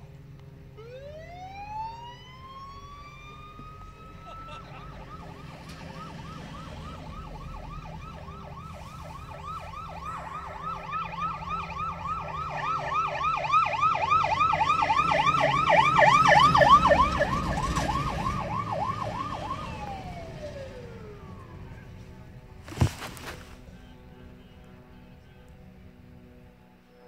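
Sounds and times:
low engine rumble: 0.0 - 26.8
siren in fast yelp: 0.8 - 21.4.

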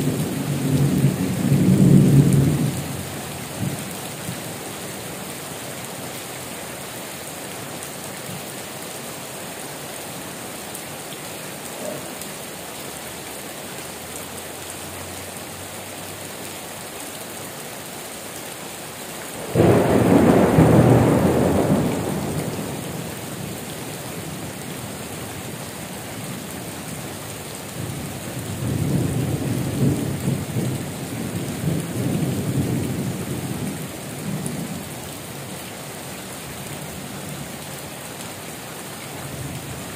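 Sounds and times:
rumble of thunder: 0.0 - 3.8, 19.4 - 23.6
heavy rain: 0.0 - 39.9
thunderclap: 19.4 - 23.0.

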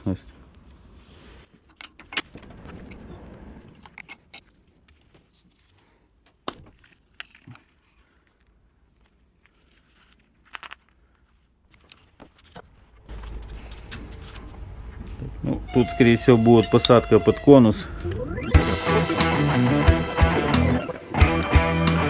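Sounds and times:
metal parts clinking: 1.6 - 3.0, 3.7 - 5.0, 6.8 - 8.0, 9.4 - 12.2, 16.6 - 17.1.

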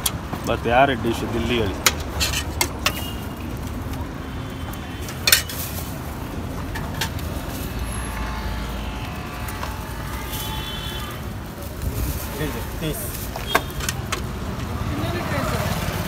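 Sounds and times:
low traffic hum: 0.0 - 16.0
steel utensils clinking: 1.4 - 3.5, 5.0 - 6.0.

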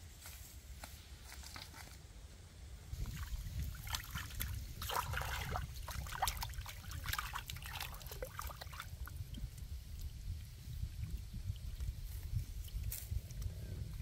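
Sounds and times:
water splashing and dribbling: 3.0 - 13.5.

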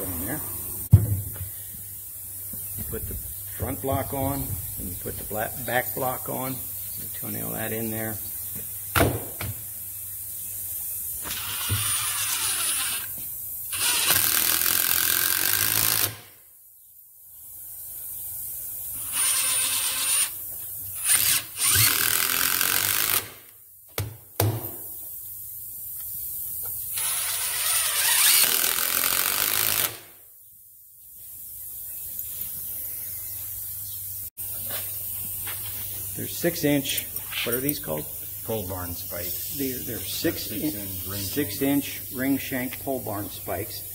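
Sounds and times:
cordless drill driving screws: 11.2 - 16.2, 19.0 - 20.4, 21.0 - 23.4, 26.9 - 30.1.

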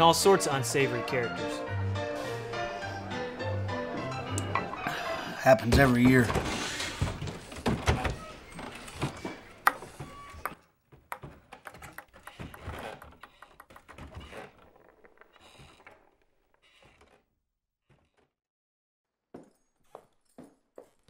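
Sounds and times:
ping-pong ball bouncing on floor: 9.7 - 12.6.

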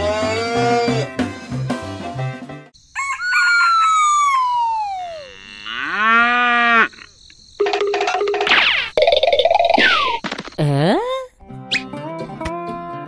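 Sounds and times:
cow mooing: 0.0 - 1.1, 5.1 - 7.0
background music: 0.0 - 2.7, 11.4 - 13.0
rooster crowing: 2.9 - 6.7.

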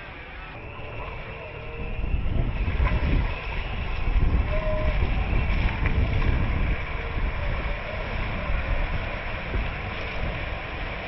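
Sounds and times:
road and wind noise: 0.0 - 11.0
vehicle rumble: 0.0 - 11.0.

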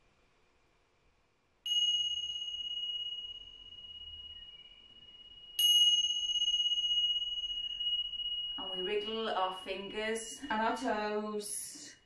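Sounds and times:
small cymbals ringing: 1.6 - 11.2.

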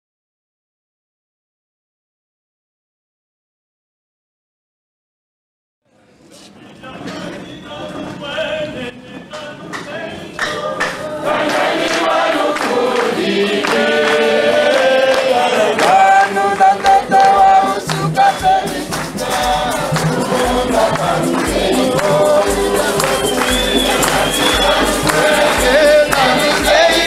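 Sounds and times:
choir singing a hymn: 6.6 - 27.0
steady percussion beat: 9.8 - 27.0.

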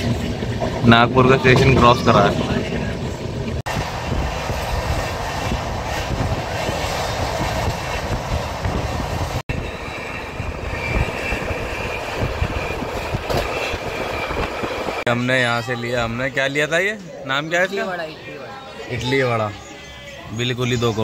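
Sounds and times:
train wheels rumbling on rails: 0.0 - 15.1.

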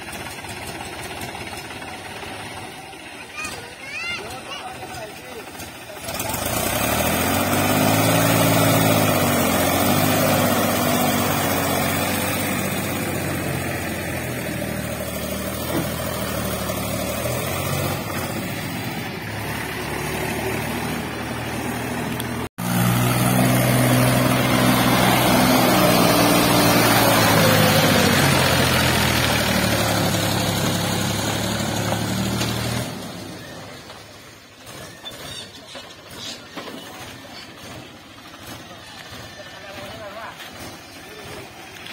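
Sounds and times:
tractor diesel engine straining: 0.0 - 41.9.

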